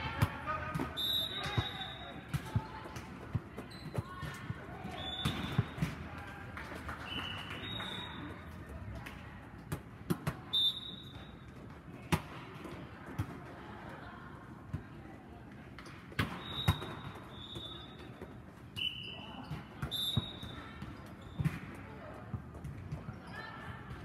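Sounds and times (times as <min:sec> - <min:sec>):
sneaker squeaks on court floor: 0:03.6 - 0:04.2, 0:05.0 - 0:05.9, 0:16.2 - 0:18.2, 0:18.8 - 0:21.7.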